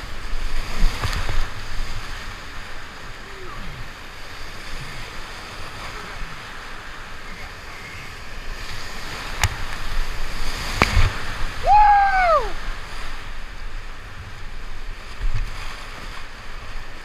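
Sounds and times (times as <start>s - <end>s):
rushing whitewater: 0.0s - 17.0s
water splashing over boat: 0.0s - 17.0s
person whooping: 11.6s - 12.6s.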